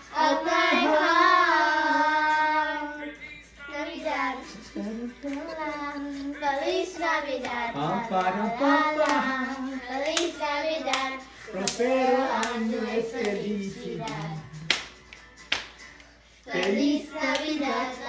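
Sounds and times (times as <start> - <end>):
people singing: 0.0 - 14.9, 16.4 - 18.0
hands clapping: 5.2 - 5.7, 6.6 - 17.7.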